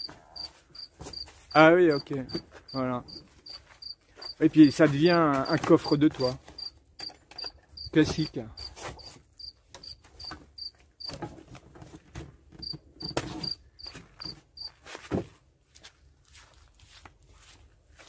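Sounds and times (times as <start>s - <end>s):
cricket chirping: 0.0s - 2.1s, 2.7s - 4.4s, 6.6s - 8.7s, 9.4s - 11.1s, 13.0s - 13.9s.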